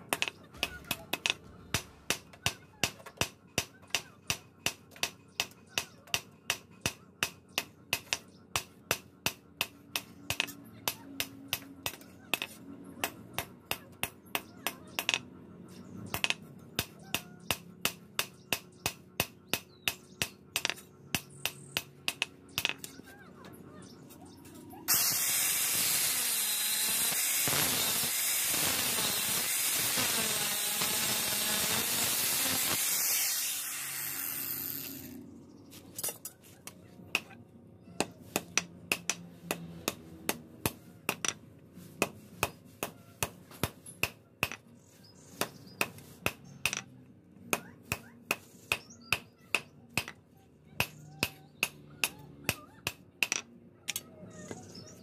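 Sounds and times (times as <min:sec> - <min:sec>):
angle grinder cutting steel: 0:24.9 - 0:35.2.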